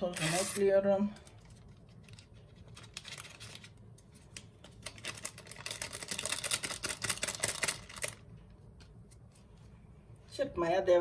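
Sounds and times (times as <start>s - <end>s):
paper sachet crinkling: 1.2s - 8.2s.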